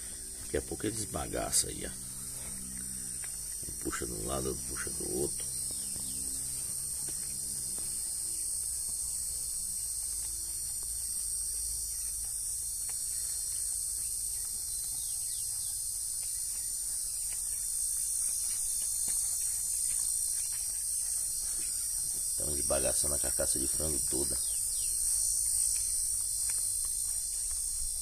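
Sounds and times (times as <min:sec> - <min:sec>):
low hum: 0:00.0 - 0:13.3
puppies chewing bones: 0:02.0 - 0:08.0, 0:08.6 - 0:22.2, 0:24.4 - 0:28.0.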